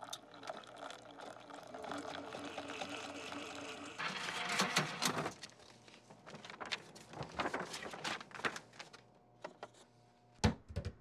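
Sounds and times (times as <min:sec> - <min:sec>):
vending machine dispensing rush: 0:02.4 - 0:05.4.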